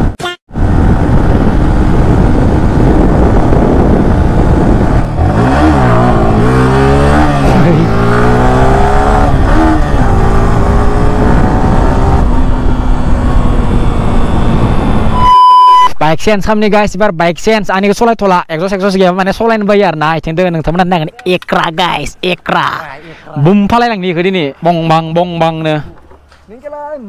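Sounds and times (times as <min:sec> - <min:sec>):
wind rushing over microphone: 0:00.0 - 0:15.3
motorcycle engine shifting gears: 0:00.7 - 0:15.2.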